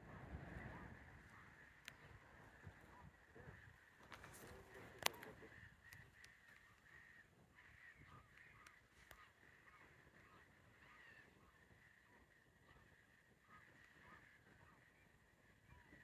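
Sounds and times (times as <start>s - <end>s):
distant birds calling: 0.5s - 16.0s
faint clicks: 1.8s - 2.7s, 4.0s - 7.0s, 7.6s - 9.4s.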